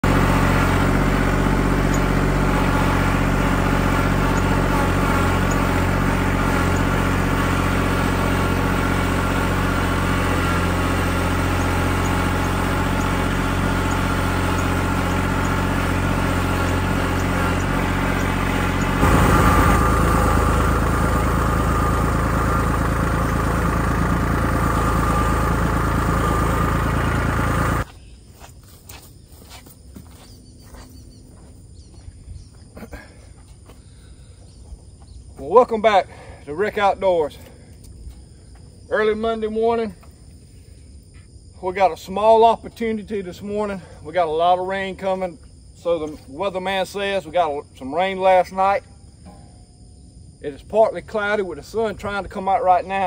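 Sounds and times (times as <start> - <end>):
tractor engine running: 0.0 - 27.9.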